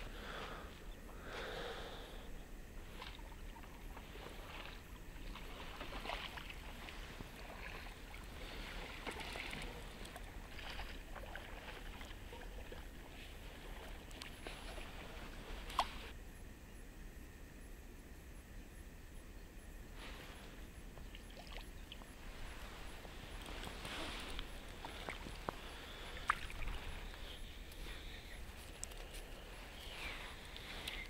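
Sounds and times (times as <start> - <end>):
soft water splashes: 2.9 - 16.2, 21.1 - 31.0.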